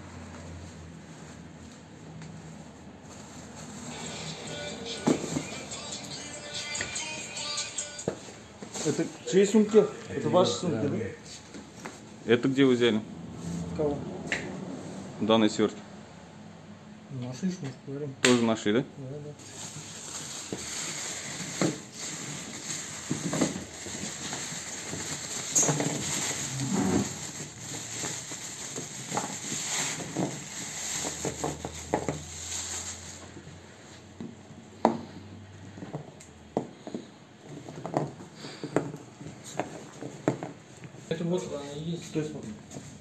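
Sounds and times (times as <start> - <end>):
packets being handled: 19.4 - 33.3
plastic bag crinkling: 19.4 - 33.4.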